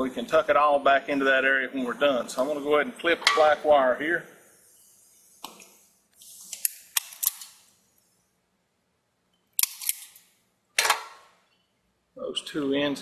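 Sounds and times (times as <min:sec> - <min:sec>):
wire strippers clicking and snapping: 0:09.5 - 0:11.2.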